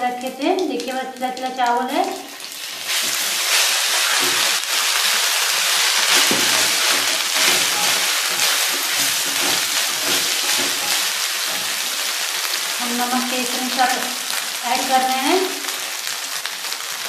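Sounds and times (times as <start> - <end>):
rice sizzling in hot oil: 0.0 - 17.0
wooden spatula scraping: 2.6 - 12.3.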